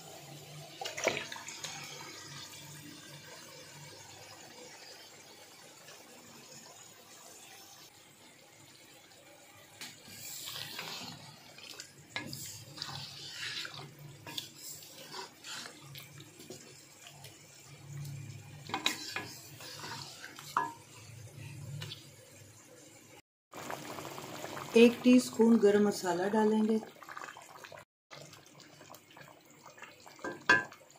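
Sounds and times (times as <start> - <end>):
food sizzling and bubbling: 0.0 - 30.9
spatula scraping a steel pot: 10.1 - 11.3, 12.2 - 16.5, 18.7 - 21.0.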